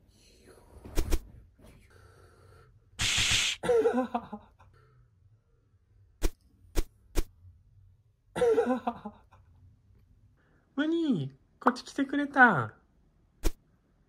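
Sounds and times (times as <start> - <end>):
burst of hiss: 3.0 - 3.6.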